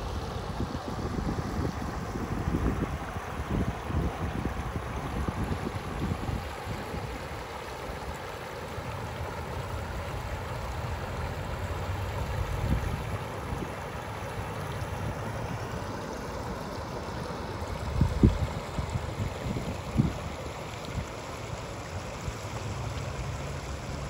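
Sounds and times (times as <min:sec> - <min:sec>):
river babbling over rocks: 0:00.0 - 0:24.0.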